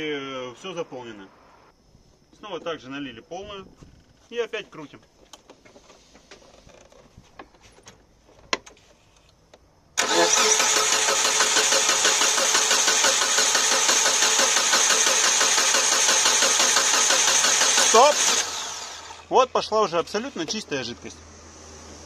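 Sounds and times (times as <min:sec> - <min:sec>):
engine cranking on starter motor: 0:10.0 - 0:19.3.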